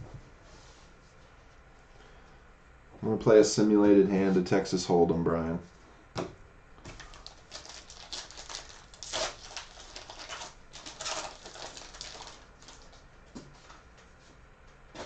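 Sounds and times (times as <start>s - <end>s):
foil packs crinkling: 6.9s - 13.0s.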